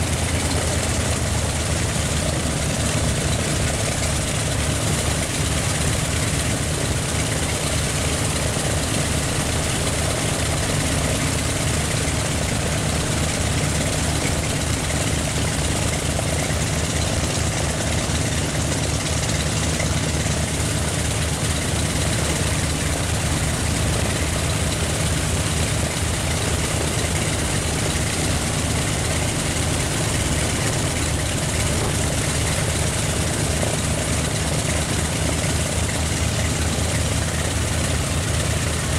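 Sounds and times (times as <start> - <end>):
propellers turning: 0.0 - 38.9
radial aircraft engines running: 0.0 - 38.9.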